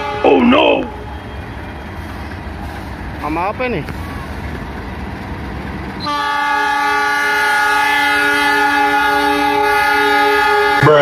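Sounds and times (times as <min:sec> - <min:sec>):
locomotive horn blast: 0:00.0 - 0:02.3, 0:06.0 - 0:11.0
train rumble: 0:00.0 - 0:11.0.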